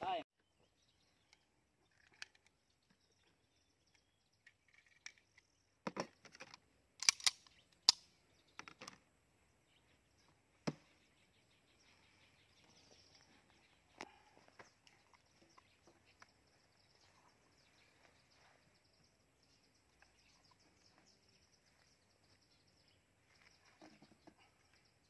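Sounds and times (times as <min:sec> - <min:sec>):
metallic clicks of pistol handling: 0:06.5 - 0:08.2.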